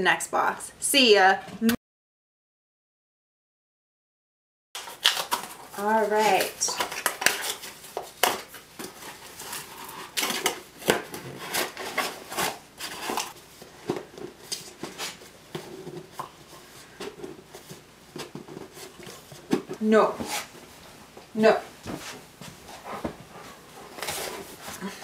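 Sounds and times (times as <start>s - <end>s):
cardboard packaging handled: 4.8s - 20.5s, 23.8s - 25.0s.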